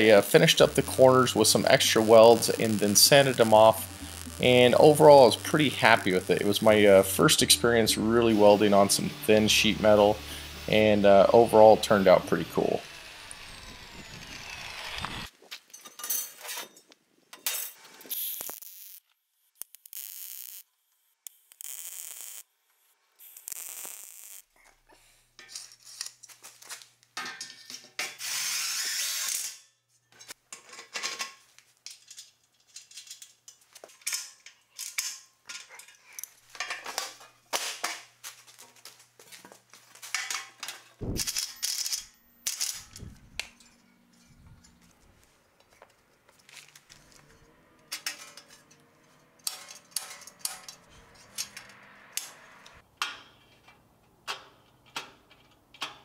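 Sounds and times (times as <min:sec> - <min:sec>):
loud hiss: 0:00.0 - 0:12.6
metal parts clanking: 0:40.1 - 0:45.1, 0:45.7 - 0:52.3.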